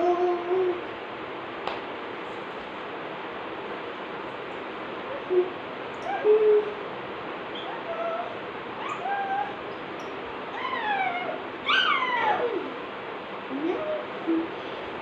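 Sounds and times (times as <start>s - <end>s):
child making sing-song sounds: 0.0s - 0.8s.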